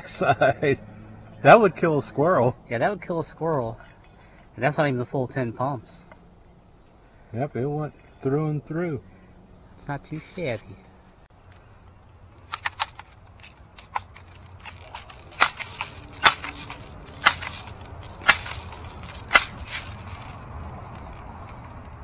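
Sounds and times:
air rifle pump lever clacks: 0:12.4 - 0:21.6.

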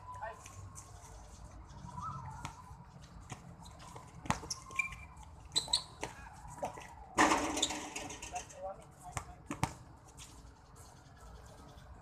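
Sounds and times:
shoes tapping and scuffing on court: 0:02.3 - 0:07.0, 0:08.8 - 0:10.6.

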